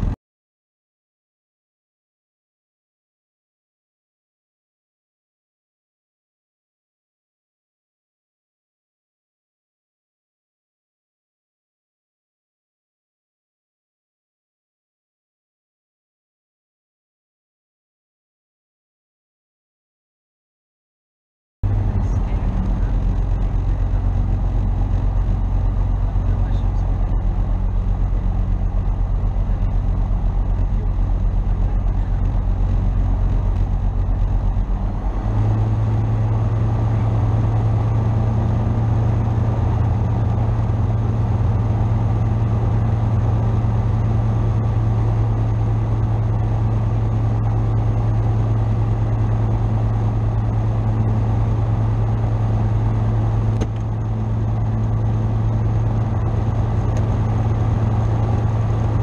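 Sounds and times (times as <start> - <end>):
aircraft engine and propeller running: 21.6 - 59.0.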